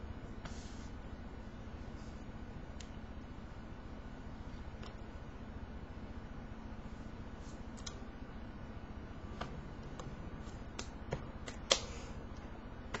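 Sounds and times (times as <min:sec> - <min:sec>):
steady low hum: 0:00.0 - 0:13.0
hands slapping and tapping: 0:10.7 - 0:12.0.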